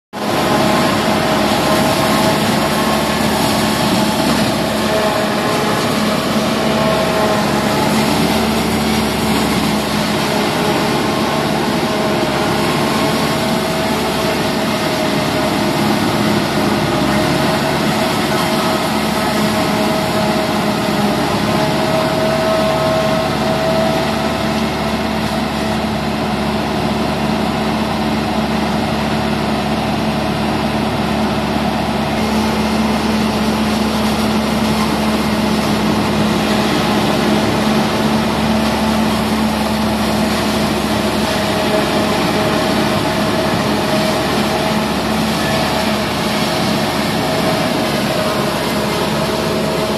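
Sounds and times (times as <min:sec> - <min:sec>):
tractor and harvester droning: 0:00.1 - 0:49.9.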